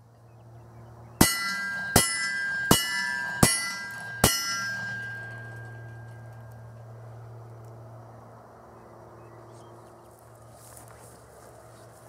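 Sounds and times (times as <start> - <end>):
steel plates ringing: 1.2 - 6.8.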